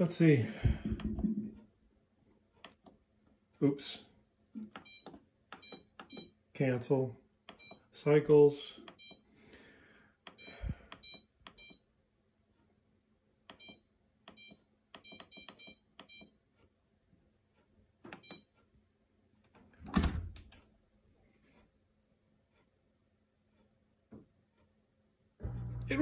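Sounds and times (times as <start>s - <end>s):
dishwasher keypad beeps: 4.8s - 6.4s, 7.5s - 7.8s, 8.9s - 9.2s, 10.3s - 11.8s, 13.5s - 16.3s, 18.1s - 18.5s.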